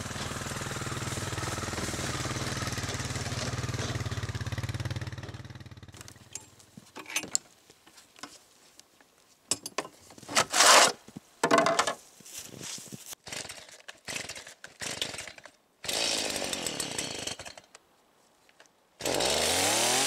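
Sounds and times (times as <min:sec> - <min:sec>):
atv engine idling: 0:00.0 - 0:06.6
scraping rustles on metal rack: 0:10.2 - 0:11.0
knocks and clunks: 0:11.4 - 0:12.0.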